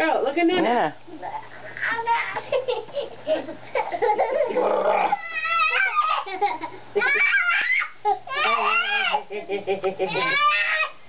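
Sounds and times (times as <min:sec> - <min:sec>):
children laughing and squealing: 0:01.8 - 0:09.3, 0:10.0 - 0:11.0.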